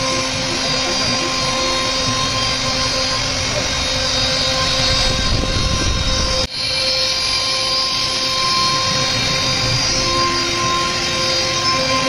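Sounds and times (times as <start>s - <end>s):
bit cutting wood: 0.0s - 12.0s
router spindle whining: 0.0s - 12.0s.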